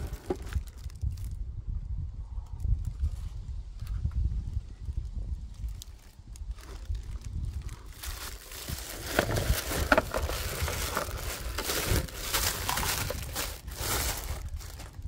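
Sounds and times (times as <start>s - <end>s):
tissue paper crinkling: 6.6s - 15.0s.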